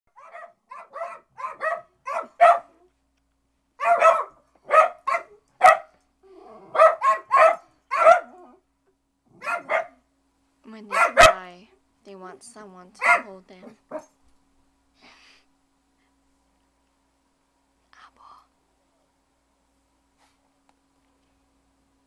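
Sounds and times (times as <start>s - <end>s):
small dogs barking: 0.1s - 2.9s, 3.8s - 6.0s, 6.6s - 8.6s, 9.3s - 10.1s, 10.9s - 11.5s, 13.0s - 14.2s.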